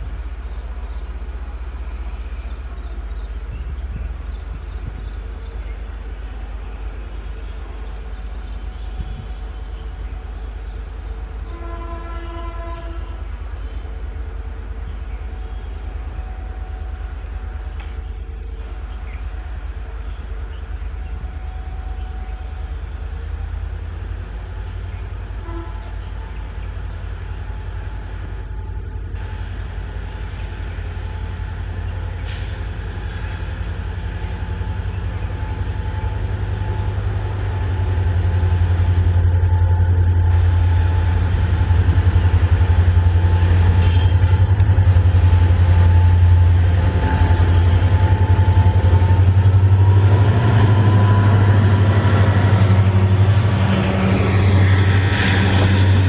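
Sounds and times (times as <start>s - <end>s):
locomotive engine rumble: 0.0s - 56.0s
train horn blast: 11.4s - 13.8s, 25.3s - 26.7s, 34.2s - 56.0s.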